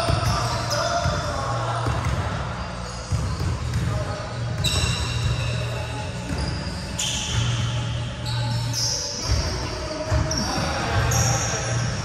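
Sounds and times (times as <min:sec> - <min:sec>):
basketballs bouncing on wood floor: 0:00.0 - 0:02.4, 0:03.1 - 0:05.6, 0:06.2 - 0:07.8, 0:09.2 - 0:11.4
sneakers squeaking: 0:00.0 - 0:12.0.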